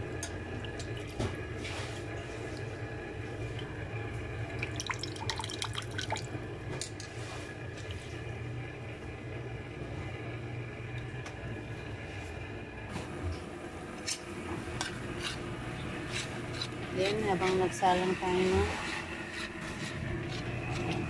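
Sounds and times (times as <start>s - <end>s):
steady low hum: 0.0s - 21.0s
drips and small splashes: 0.2s - 1.2s, 4.5s - 6.4s.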